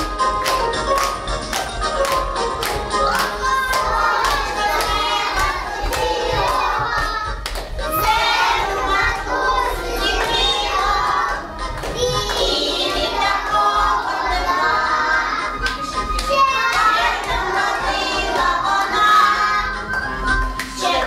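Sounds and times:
music with a steady beat: 0:00.0 - 0:10.0
young children singing: 0:02.9 - 0:21.0.

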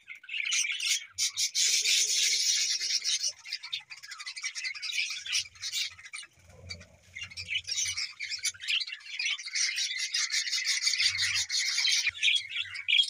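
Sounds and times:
budgerigars chattering: 0:00.0 - 0:13.0.

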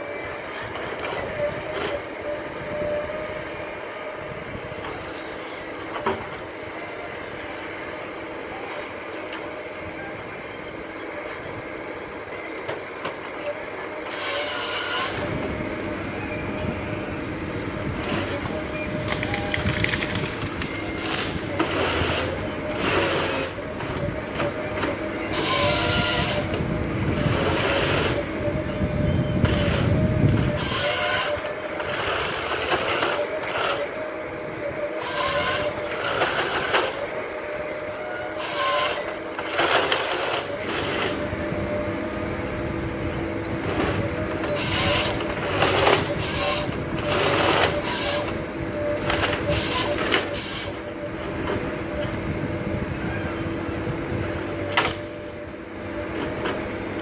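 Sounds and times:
engine and hydraulics whine: 0:00.0 - 0:57.0
harvester head sawing: 0:13.1 - 0:28.4, 0:29.4 - 0:37.2, 0:37.8 - 0:42.6, 0:43.6 - 0:52.1.

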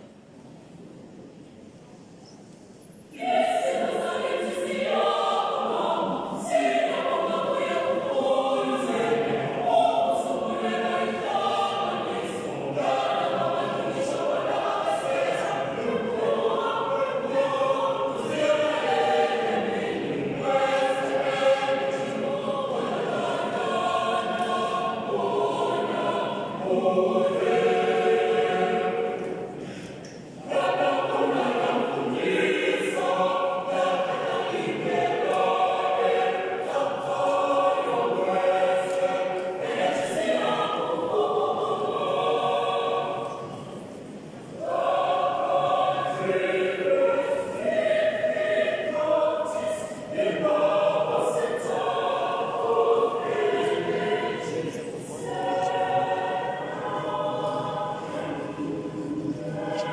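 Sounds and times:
choir singing: 0:03.1 - 0:59.9.

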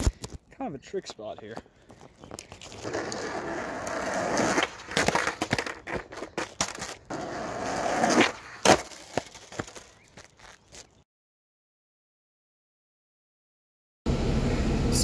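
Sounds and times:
skateboard wheels rolling on concrete: 0:00.1 - 0:11.0
skateboard clacking on pavement: 0:02.4 - 0:10.3.

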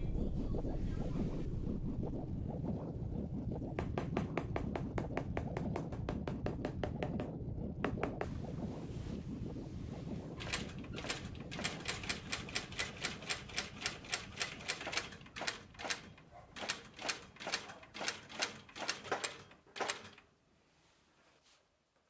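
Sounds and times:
low rumble: 0:00.0 - 0:11.6.

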